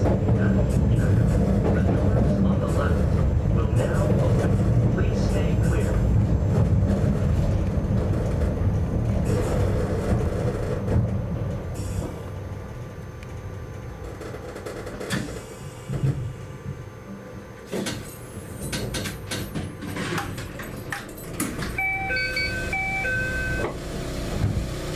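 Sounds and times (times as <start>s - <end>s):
electronic chime: 21.8s - 23.7s.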